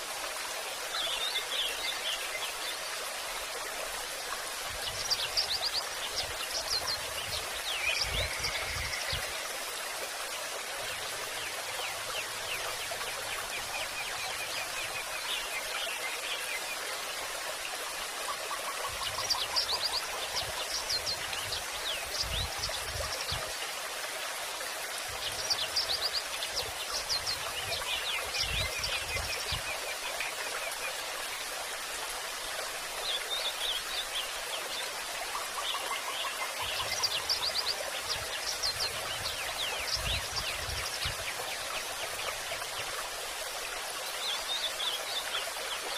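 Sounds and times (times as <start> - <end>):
flowing water: 0.0 - 45.9.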